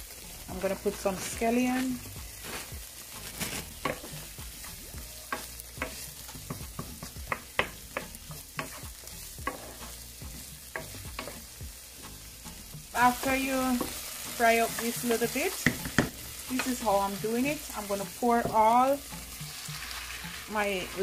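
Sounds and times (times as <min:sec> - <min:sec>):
onions sizzling in oil: 0:00.0 - 0:21.0
utensil scraping a pan: 0:03.7 - 0:10.0.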